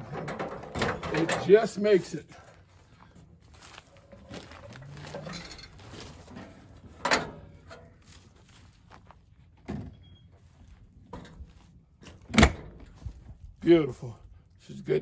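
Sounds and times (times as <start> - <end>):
metal handling noises: 0.0 - 1.8, 3.7 - 9.0, 9.6 - 13.3
metal steps clanking: 0.0 - 1.8, 4.4 - 8.0.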